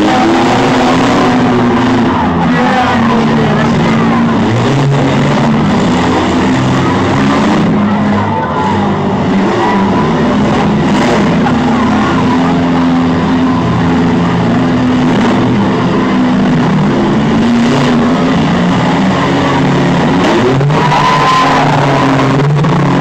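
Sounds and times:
engines revving: 0.0s - 23.0s
vehicles colliding: 0.0s - 23.0s.

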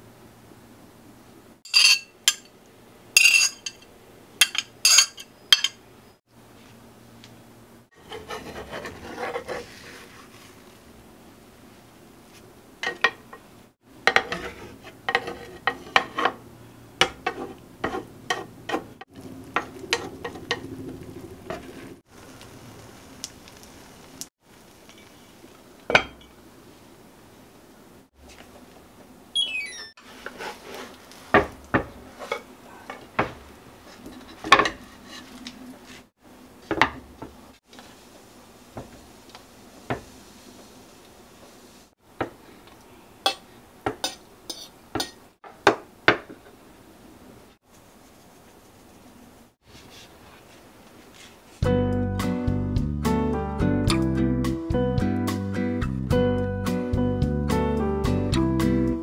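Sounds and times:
dishes clinking on a countertop: 1.7s - 2.5s, 3.2s - 5.8s, 25.9s - 26.3s, 43.2s - 46.4s
utensils scraping a frying pan: 8.0s - 10.5s, 14.1s - 16.4s, 17.0s - 19.0s, 33.9s - 36.1s, 43.3s - 45.2s
omelette sizzling: 19.1s - 25.8s.

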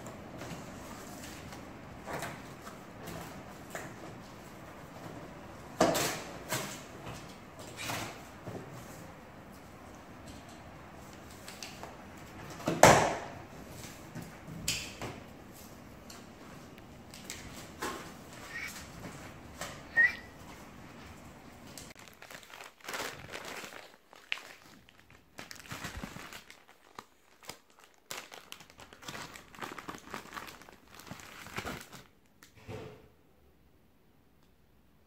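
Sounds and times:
paper and packaging rustling: 0.0s - 12.8s, 13.5s - 32.2s
sharp squeak: 19.9s - 20.3s.

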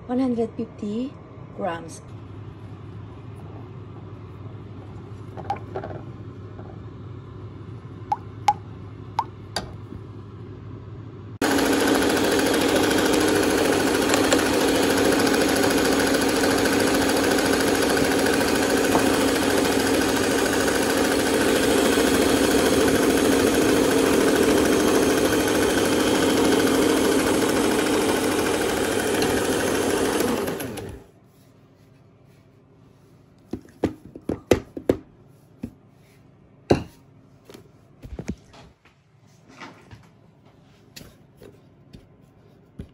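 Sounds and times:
electric mixer whisking batter: 11.4s - 31.1s.

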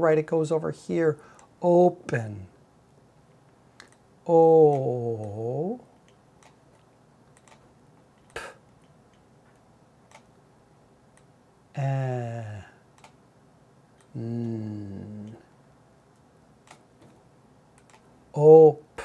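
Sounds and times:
man sounding out speech: 0.0s - 2.5s, 4.3s - 5.8s, 18.4s - 18.9s.

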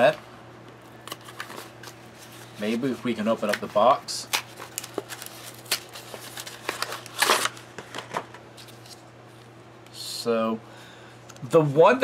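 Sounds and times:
plastic and foil pouches rustling: 1.1s - 9.0s.

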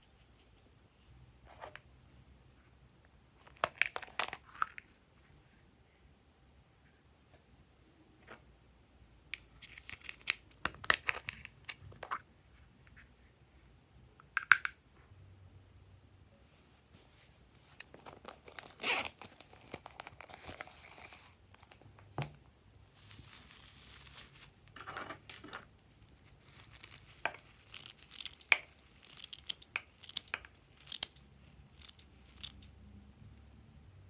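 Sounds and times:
tinsel crinkling and rustling: 0.0s - 1.2s, 17.0s - 21.8s, 22.7s - 33.4s.

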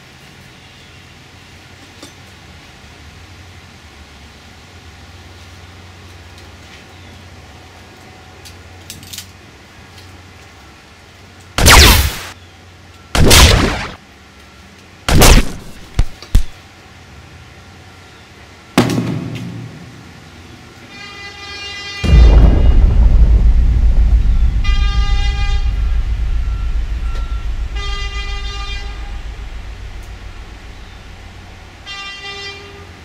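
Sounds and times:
gunshot-like blasts: 11.6s - 12.4s, 13.2s - 14.0s, 15.1s - 16.5s, 22.0s - 31.8s
short cracks: 13.2s - 14.0s, 15.1s - 16.6s
low horn-like tone: 21.0s - 32.8s.

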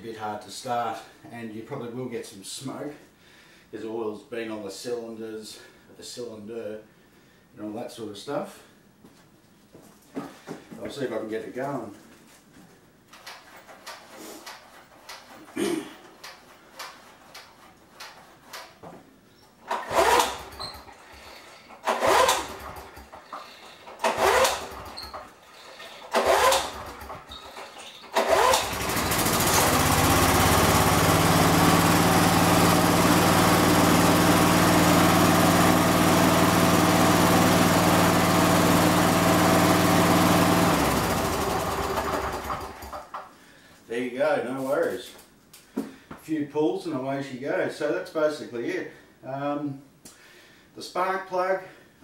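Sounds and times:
engine coughing: 15.4s - 16.2s
lawn mower engine running: 19.7s - 43.1s.

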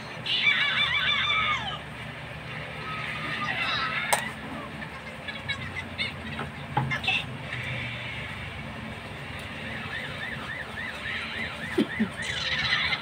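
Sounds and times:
low steady hum: 0.0s - 13.0s
electronic alarm siren warbling: 9.6s - 13.0s.

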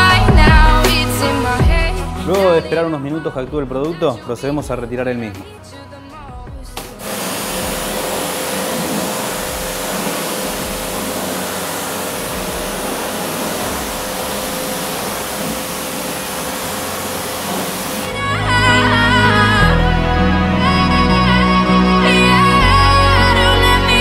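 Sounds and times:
pressure washer spraying: 6.8s - 18.2s.

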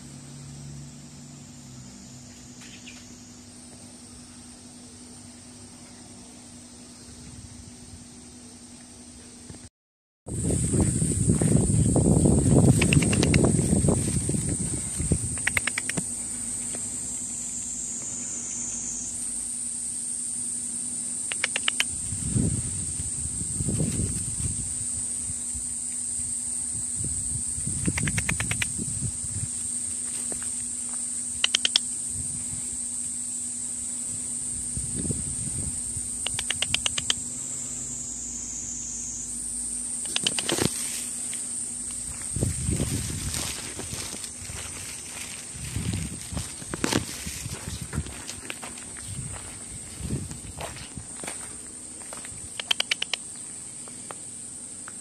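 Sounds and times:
cicadas droning: 0.0s - 9.7s, 10.3s - 55.0s.

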